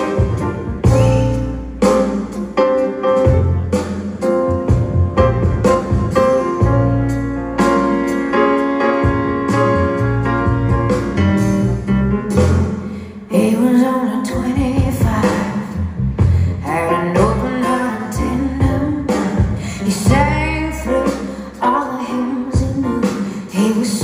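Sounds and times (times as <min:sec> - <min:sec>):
live band playing slow song: 0:00.0 - 0:24.0
woman singing: 0:13.2 - 0:15.8, 0:16.5 - 0:24.0.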